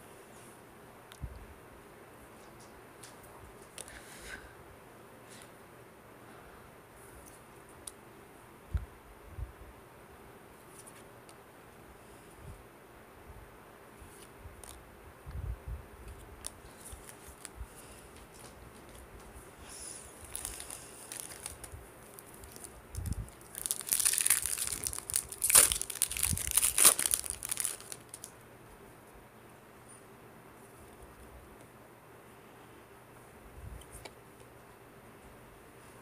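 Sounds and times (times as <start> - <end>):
plastic wrapper crinkling and tearing: 16.4 - 17.5, 20.2 - 28.3.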